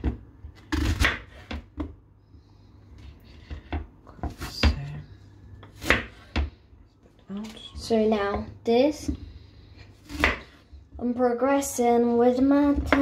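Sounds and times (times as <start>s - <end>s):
knife chopping on cutting board: 0.0s - 1.9s, 5.6s - 6.5s, 10.0s - 10.6s.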